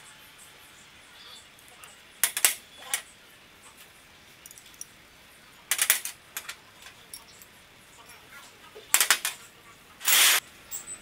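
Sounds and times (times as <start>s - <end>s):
spanners and nuts clinking: 5.7s - 8.2s.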